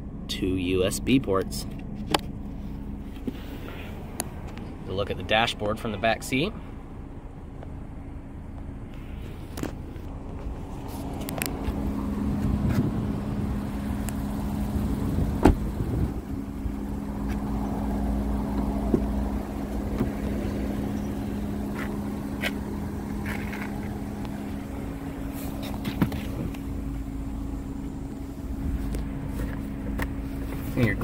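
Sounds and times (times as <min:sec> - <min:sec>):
low hum and rumble: 0:00.0 - 0:31.0
car door shutting: 0:15.2 - 0:16.1, 0:18.5 - 0:20.6, 0:25.2 - 0:26.7.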